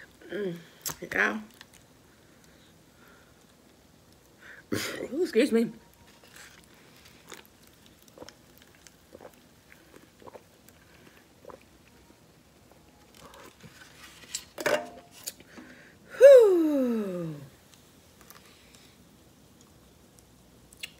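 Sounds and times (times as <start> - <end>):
person chewing: 6.2 - 12.0.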